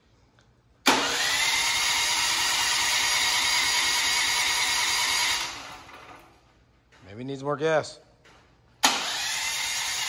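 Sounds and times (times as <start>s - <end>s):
generator engine running: 0.9s - 6.5s, 8.8s - 10.0s.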